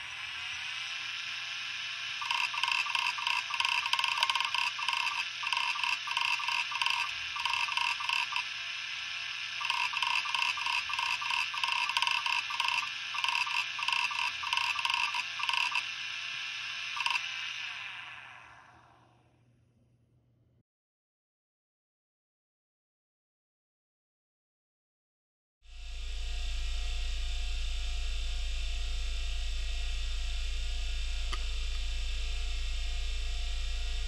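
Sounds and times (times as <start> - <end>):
hard drive spindle whine: 0.0 - 19.4, 25.7 - 34.0
hard drive head clicking chatter: 2.2 - 8.6, 9.2 - 16.0, 16.9 - 17.8.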